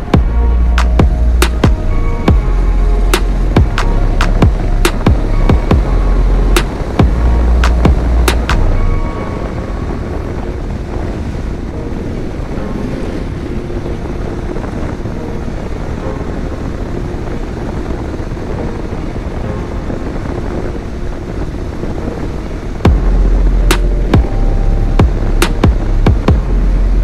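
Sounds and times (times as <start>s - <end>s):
background music: 0.0s - 27.0s
wind rush on microphone: 0.0s - 27.0s
motorcycle engine running: 22.8s - 24.4s.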